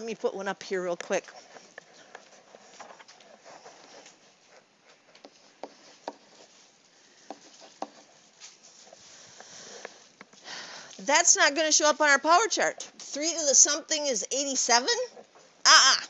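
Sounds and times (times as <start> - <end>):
stylus tapping and scratching on tablet: 0.0 - 10.4.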